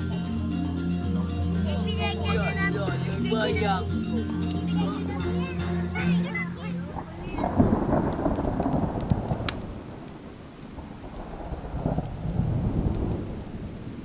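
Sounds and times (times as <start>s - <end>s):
deep rumbling: 0.0s - 14.0s.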